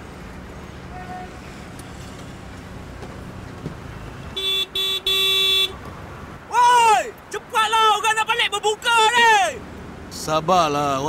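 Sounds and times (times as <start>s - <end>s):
traffic rumble: 0.0s - 11.0s
car horn honking: 0.9s - 1.4s, 4.3s - 5.8s
man shouting: 6.5s - 9.6s.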